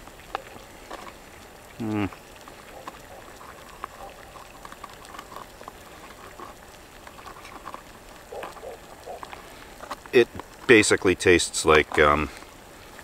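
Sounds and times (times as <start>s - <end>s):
water bubbling in a pot: 0.0s - 13.0s.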